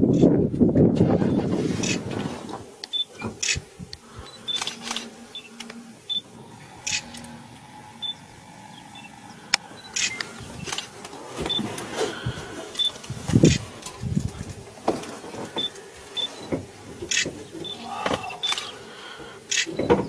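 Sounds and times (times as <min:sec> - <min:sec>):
faint steady hum: 0:00.0 - 0:20.0
camera shutter clicks: 0:02.8 - 0:03.6, 0:04.5 - 0:05.8, 0:06.8 - 0:07.3, 0:09.9 - 0:10.9, 0:17.1 - 0:17.3, 0:18.4 - 0:18.7, 0:19.5 - 0:19.8.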